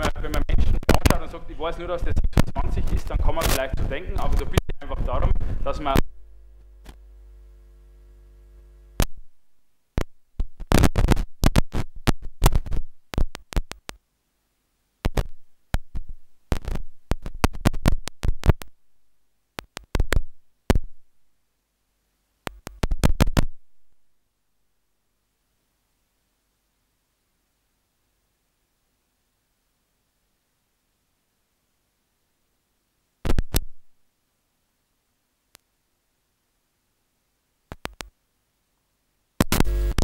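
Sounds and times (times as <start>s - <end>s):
choppy glitch clicks and noise bursts: 0.0s - 6.2s, 8.9s - 14.0s, 15.0s - 18.8s, 19.6s - 20.9s, 22.4s - 23.6s, 33.2s - 33.8s, 37.7s - 38.2s, 39.4s - 40.0s
electronic buzz of stacked tones: 5.8s - 9.2s, 39.4s - 40.0s.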